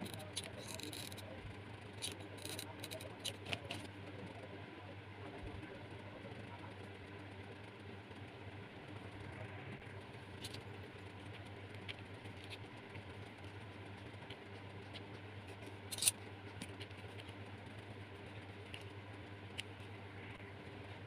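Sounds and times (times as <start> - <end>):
shells clicking and scraping: 0.0 - 1.2, 2.0 - 3.8, 14.2 - 17.4
steady low hum: 0.0 - 21.0.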